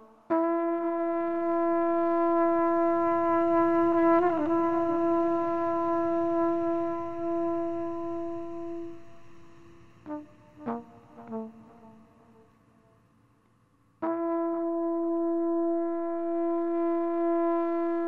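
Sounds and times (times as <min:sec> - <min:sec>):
long held music note: 0:03.4 - 0:12.3.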